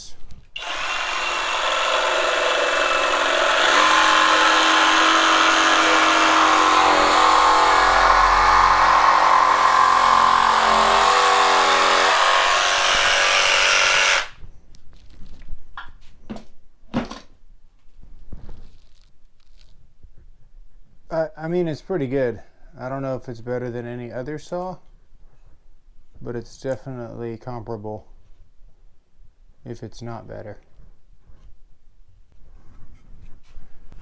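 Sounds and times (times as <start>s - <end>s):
jigsaw cutting wood: 0.6s - 14.4s.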